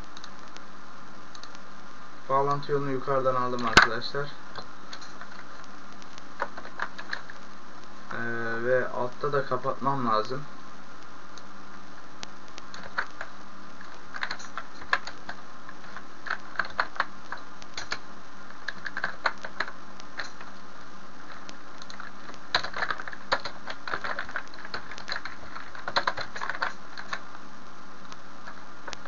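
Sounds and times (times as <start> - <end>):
typing on computer keyboard: 12.8 - 13.3, 14.1 - 15.4, 16.2 - 18.0, 18.7 - 20.4, 21.8 - 27.2.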